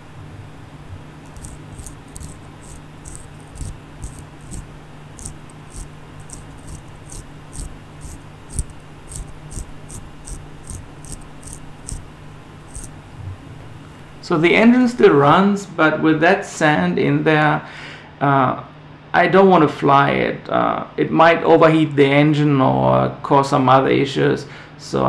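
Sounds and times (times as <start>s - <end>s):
drone motor gritty rasps: 1.2s - 13.0s.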